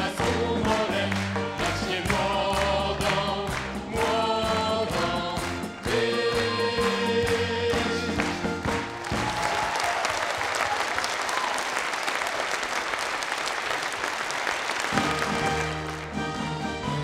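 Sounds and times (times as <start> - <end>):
music playing: 0.0 - 9.7, 14.9 - 17.0
audience applauding: 5.4 - 16.6.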